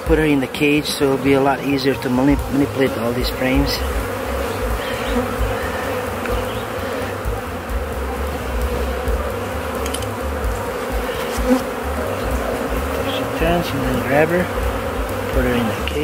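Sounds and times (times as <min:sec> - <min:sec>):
bees buzzing: 0:00.0 - 0:16.0.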